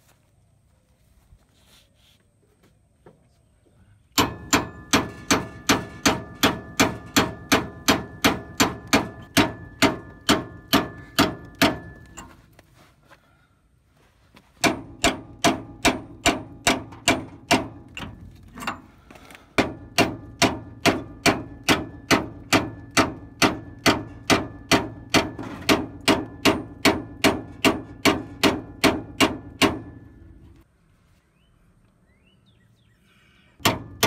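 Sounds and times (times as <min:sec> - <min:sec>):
hammer striking metal punch: 0:04.2 - 0:12.4, 0:14.6 - 0:18.8, 0:19.6 - 0:30.6, 0:33.6 - 0:34.0.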